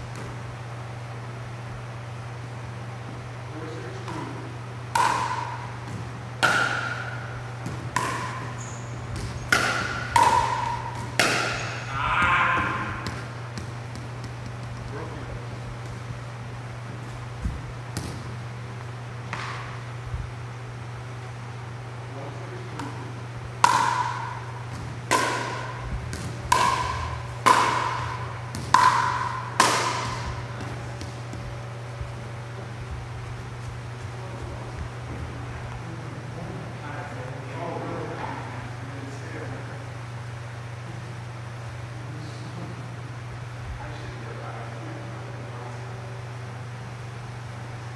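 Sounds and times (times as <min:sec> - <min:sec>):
paddles hitting plastic ball: 0:05.0 - 0:11.8, 0:13.0 - 0:15.0, 0:23.6 - 0:32.1.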